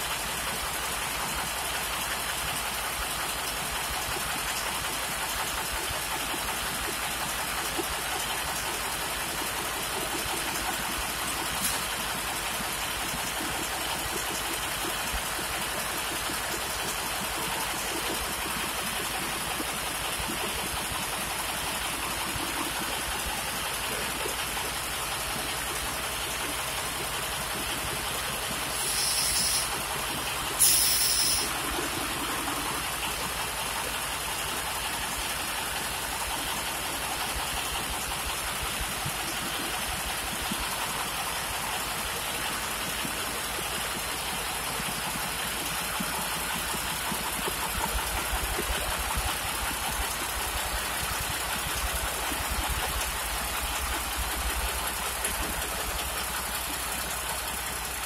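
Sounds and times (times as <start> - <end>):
diesel engine idling: 0.0 - 58.0
short air hisses: 28.7 - 29.8, 30.6 - 31.5.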